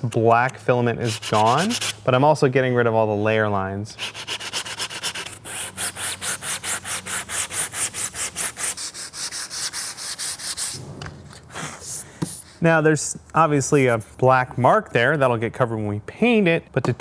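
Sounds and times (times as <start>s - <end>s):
sandpaper rubbing on plastic: 1.0s - 2.0s, 4.0s - 10.8s.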